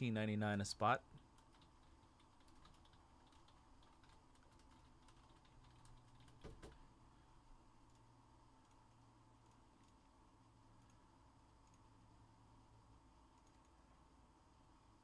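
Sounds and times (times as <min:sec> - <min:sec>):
typing on computer keyboard: 0:01.4 - 0:06.8, 0:13.4 - 0:13.8.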